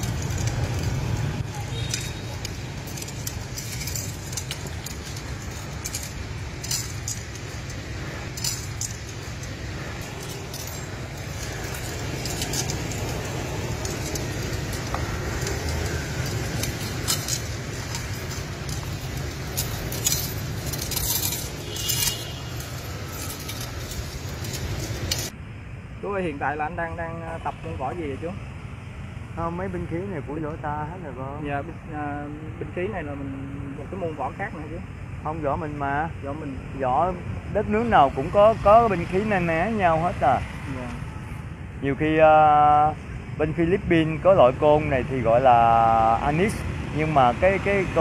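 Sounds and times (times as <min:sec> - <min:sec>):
light clinks and clicks: 0:00.0 - 0:25.3.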